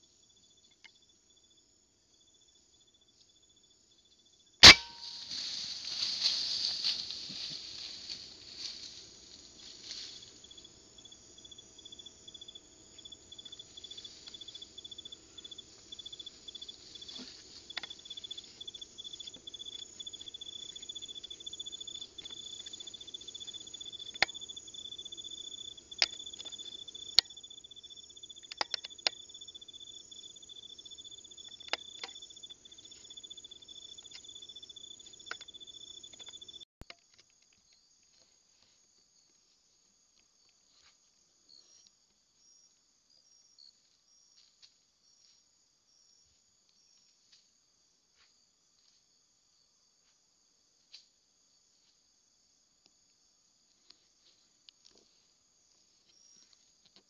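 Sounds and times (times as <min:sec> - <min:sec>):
night insects trilling: 0:00.0 - 0:39.8.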